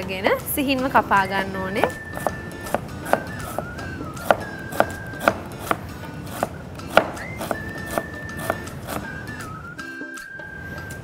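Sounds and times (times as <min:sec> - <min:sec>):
knife striking cutting board: 0:01.8 - 0:09.1.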